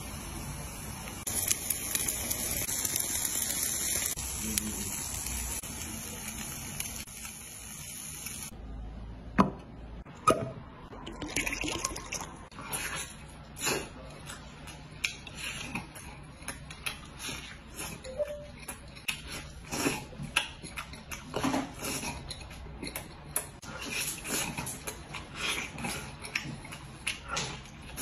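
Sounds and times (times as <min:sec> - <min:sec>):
meat sizzling on a grill: 0:00.0 - 0:08.5
liquor pouring into a glass: 0:11.0 - 0:12.4.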